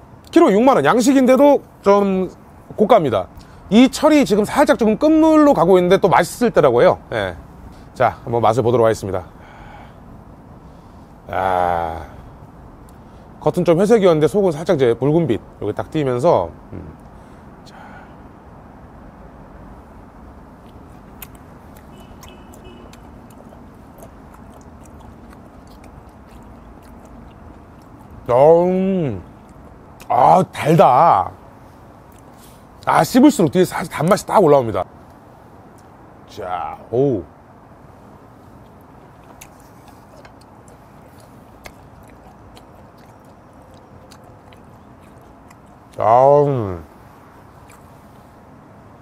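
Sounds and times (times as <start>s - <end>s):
low background hum: 0.0s - 49.0s
steady background hiss: 0.0s - 49.0s
man chewing wet clicks: 12.8s - 13.1s, 20.3s - 30.6s, 31.4s - 32.9s, 35.1s - 36.1s, 38.2s - 48.1s.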